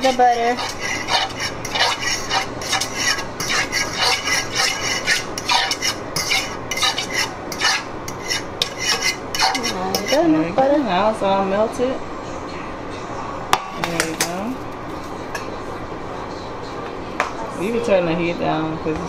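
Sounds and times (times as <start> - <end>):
fork scraping frying pan: 0.0 - 10.6.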